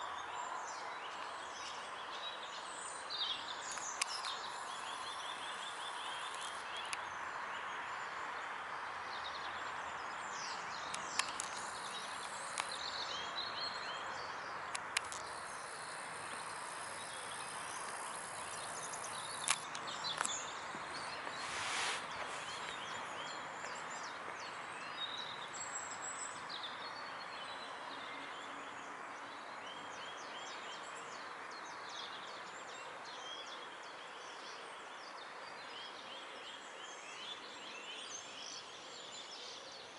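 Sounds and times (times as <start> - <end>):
steady outdoor background hiss: 0.0 - 39.9
songbirds chirping and singing: 9.2 - 39.9
sharp clicks: 10.9 - 12.8, 14.7 - 15.4, 19.2 - 20.4
brief rushing noise: 21.4 - 22.6.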